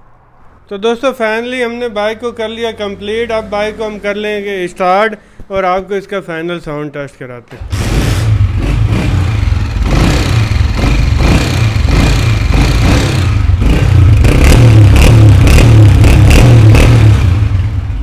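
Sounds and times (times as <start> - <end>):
motorcycle engine running: 7.6 - 18.0.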